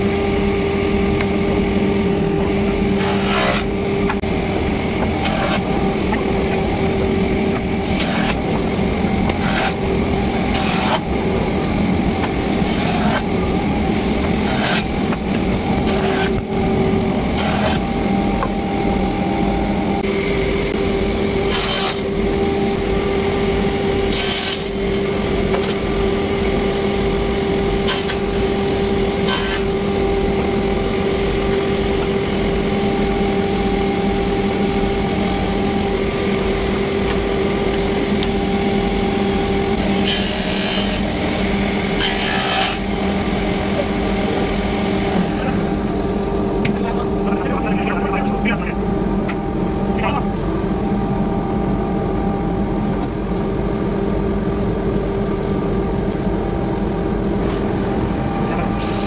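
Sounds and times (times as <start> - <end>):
panel saw humming: 0.0 - 47.3.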